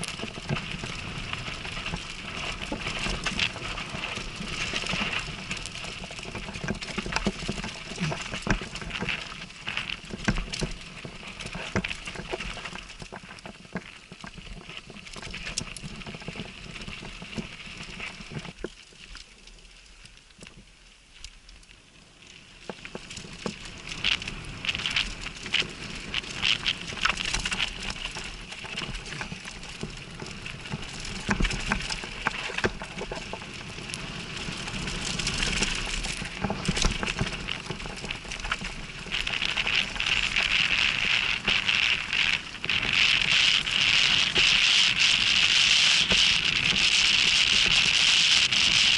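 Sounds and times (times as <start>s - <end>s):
bike knocks and rattles: 0.0s - 18.6s
bike tyres crunching on gravel: 0.0s - 20.3s, 21.7s - 48.9s.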